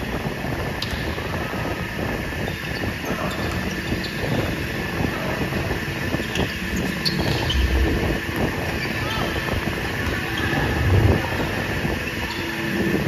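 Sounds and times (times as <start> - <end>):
shoes squeaking on court: 6.2 - 7.9
low thud: 7.4 - 8.4.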